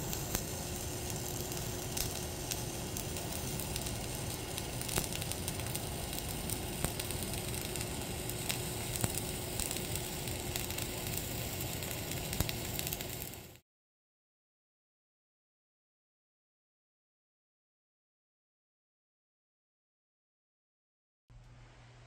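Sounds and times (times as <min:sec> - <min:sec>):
welding arc crackling: 0:00.0 - 0:13.6
welding arc pops: 0:00.0 - 0:13.6.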